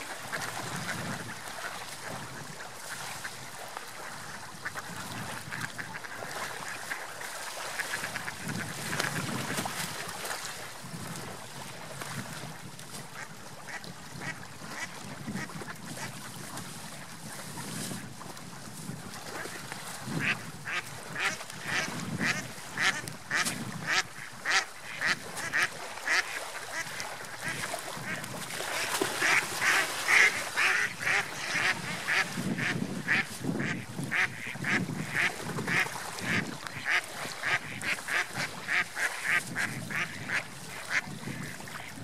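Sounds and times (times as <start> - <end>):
lapping water: 0.0 - 42.0
ducks quacking: 20.2 - 42.0.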